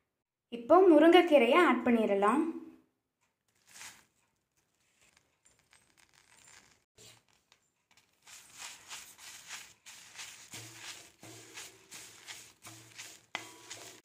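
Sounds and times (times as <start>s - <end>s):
spatula scraping leaves in a pan: 3.6s - 4.2s, 6.2s - 14.0s.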